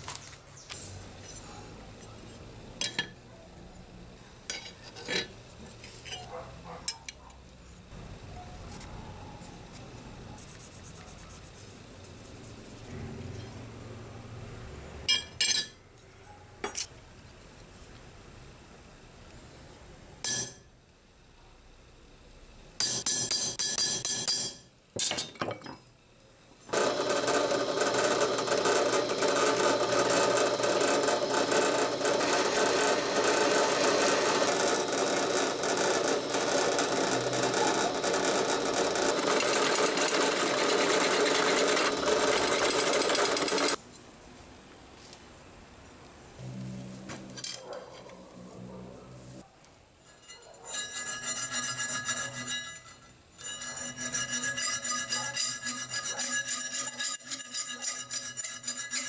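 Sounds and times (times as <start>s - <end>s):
drill boring into steel: 26.7s - 43.8s.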